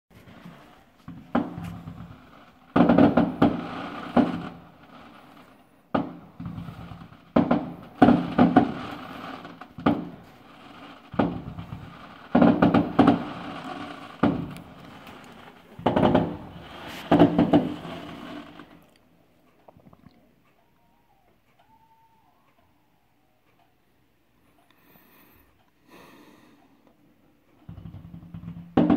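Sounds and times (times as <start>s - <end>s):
fireworks bangs with crackling echo: 0.1s - 18.9s, 27.6s - 28.9s.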